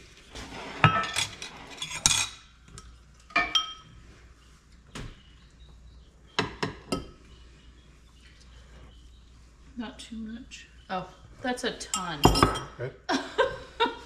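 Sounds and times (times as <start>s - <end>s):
utensils clinking on dishes: 0.8s - 4.0s, 11.9s - 12.8s.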